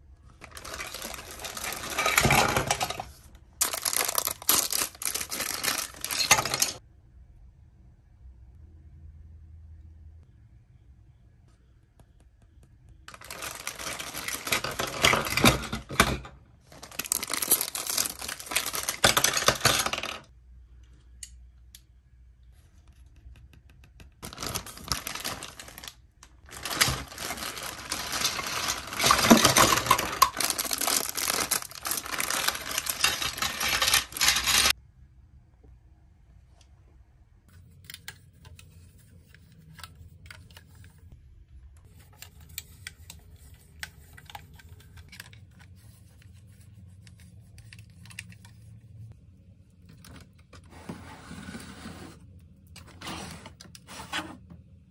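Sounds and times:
plastic blocks clattering and clicking: 0.4s - 6.8s, 13.1s - 20.3s, 26.5s - 34.8s.

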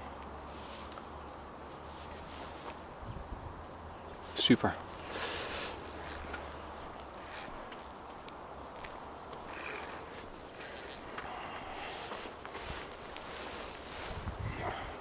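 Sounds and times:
fishing reel whirring and clicking: 5.8s - 6.3s, 7.1s - 7.6s, 9.5s - 11.1s.

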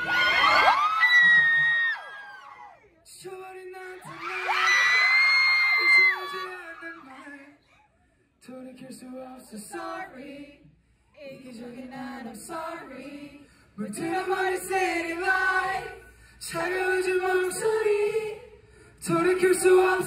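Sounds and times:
man singing unaccompanied: 5.8s - 7.6s.

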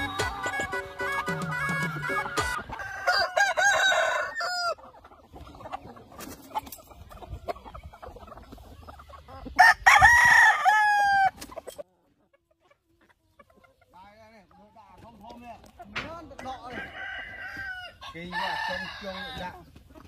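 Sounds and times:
chickens clucking: 0.0s - 20.0s
rooster crowing: 2.7s - 4.8s, 9.6s - 11.3s, 16.7s - 19.5s.

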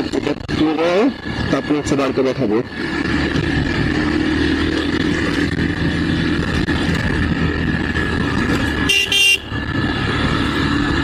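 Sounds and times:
motorcycle engine running: 0.0s - 11.0s
road and wind noise: 0.0s - 11.0s
motorcycle horn toots: 8.8s - 9.6s.

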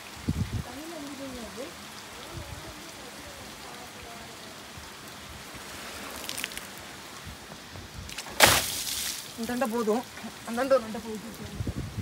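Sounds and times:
light rain hissing: 0.0s - 12.0s
water splashing against car: 5.4s - 10.0s.

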